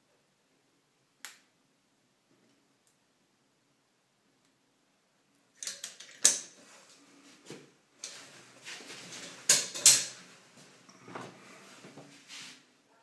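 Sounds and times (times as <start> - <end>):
faint rustling: 6.6 - 9.5, 10.1 - 12.8.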